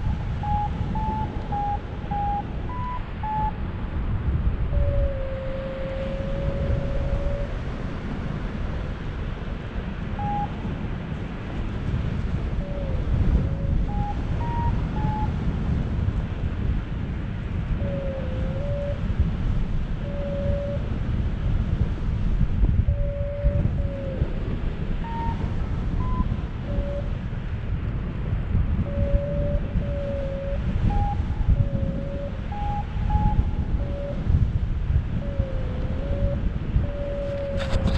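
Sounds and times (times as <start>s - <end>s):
variometer beeping tones: 0.0s - 3.6s, 10.2s - 10.6s, 13.8s - 15.3s, 25.0s - 25.4s, 26.0s - 27.0s
variometer long low tone: 0.0s - 7.8s, 10.2s - 10.7s, 12.6s - 15.8s, 20.0s - 21.0s, 22.8s - 27.2s, 28.8s - 37.9s
wind buffeting microphone: 0.0s - 37.9s.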